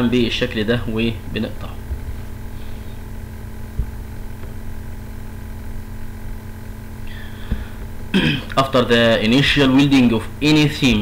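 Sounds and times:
faint even hum: 0:00.0 - 0:11.0
steady low rumble: 0:00.0 - 0:11.0
soft low thump: 0:01.8 - 0:02.2, 0:03.7 - 0:04.6, 0:07.5 - 0:08.0.

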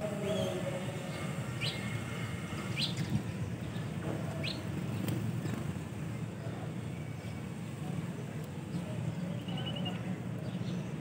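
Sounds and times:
sparrows chirping: 0:00.0 - 0:05.1, 0:08.1 - 0:11.0.

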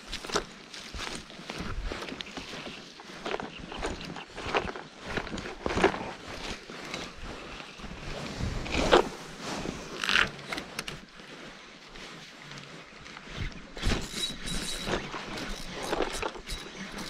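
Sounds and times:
clothing rustling: 0:00.0 - 0:16.0
fishing reel whirring: 0:13.2 - 0:17.0.

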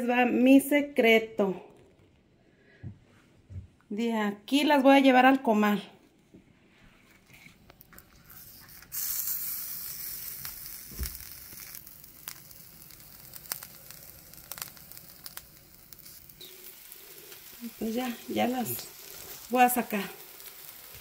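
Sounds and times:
food sizzling on griddle: 0:08.2 - 0:21.0.

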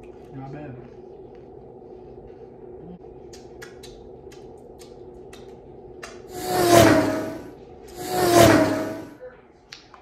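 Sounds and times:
loud rushing swell: 0:06.3 - 0:09.2.

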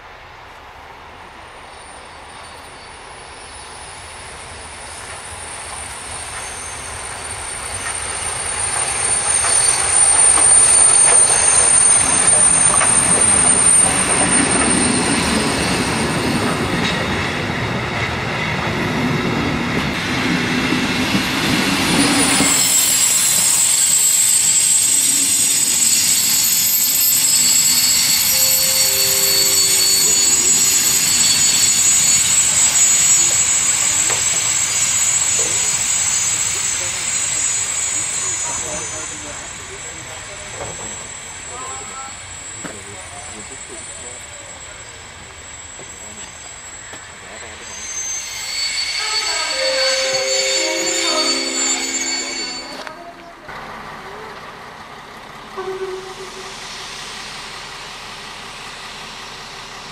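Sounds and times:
steam train passing: 0:00.0 - 0:59.9
high wheel squeal: 0:01.7 - 0:19.4, 0:20.0 - 0:53.5, 0:55.4 - 0:59.7
train wheels clattering: 0:05.0 - 0:41.1.

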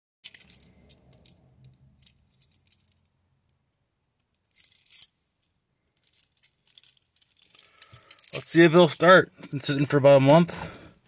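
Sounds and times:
keys jingling: 0:00.2 - 0:03.1, 0:04.5 - 0:05.1, 0:06.0 - 0:08.6.

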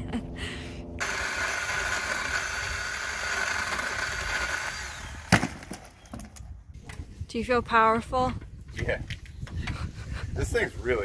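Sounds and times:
electric chainsaw whining: 0:01.0 - 0:05.6.

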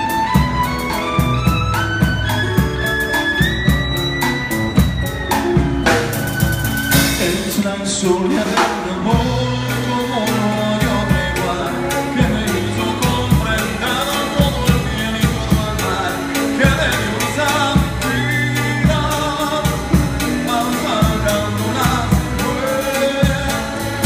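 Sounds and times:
violin melody: 0:00.0 - 0:07.2
acoustic guitars: 0:00.0 - 0:24.0
drums keeping a steady beat: 0:00.0 - 0:24.0.

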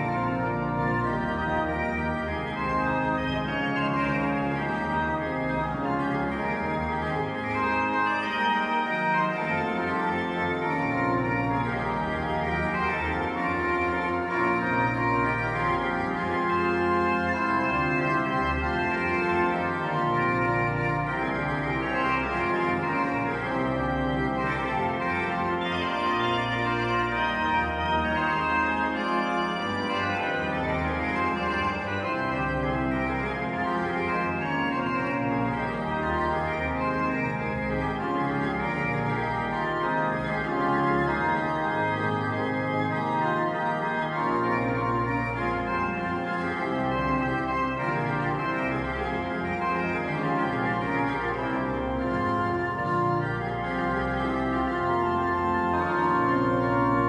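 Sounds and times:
pipe organ playing chords: 0:00.0 - 0:57.0.

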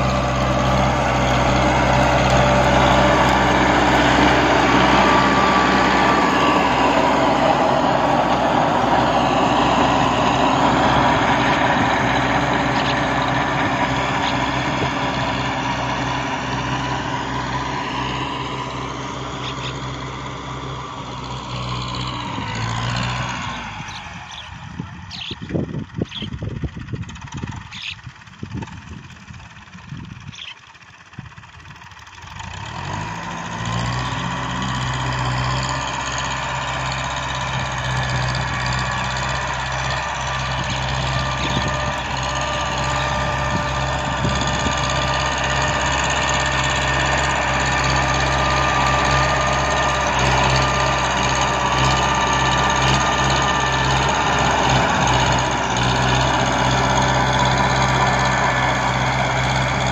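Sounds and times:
tractor diesel engine: 0:00.0 - 0:59.9
wind buffeting microphone: 0:24.5 - 0:30.4.

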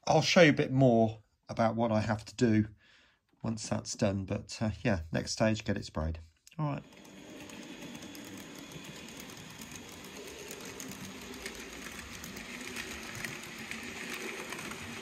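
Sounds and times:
model train motor whir: 0:06.8 - 0:15.0
wheels clicking on rails: 0:06.8 - 0:15.0.

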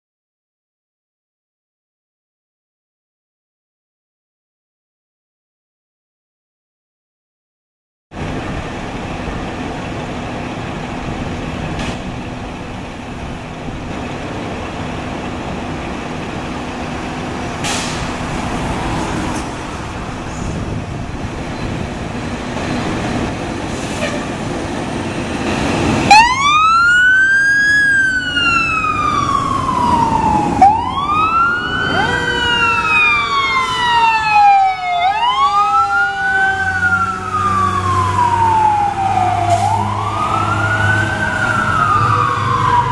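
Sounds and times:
fire truck diesel engines: 0:08.1 - 0:42.9
street noise: 0:08.1 - 0:42.9
falling siren tone: 0:26.0 - 0:42.9
fire truck siren winding: 0:26.1 - 0:42.9.

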